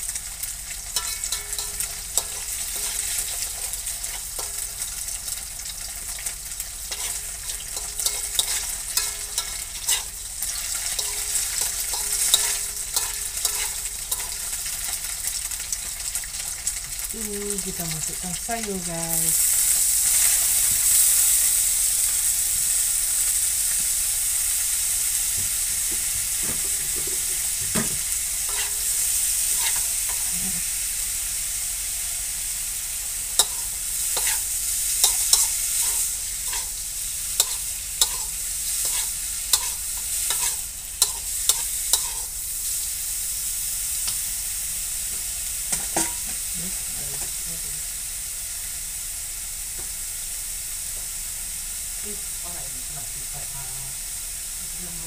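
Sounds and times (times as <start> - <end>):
vegetables sizzling in hot oil: 0.0 - 55.0
spatula scraping and clacking on wok: 0.2 - 15.1, 26.0 - 30.7, 33.4 - 42.8, 45.7 - 46.5.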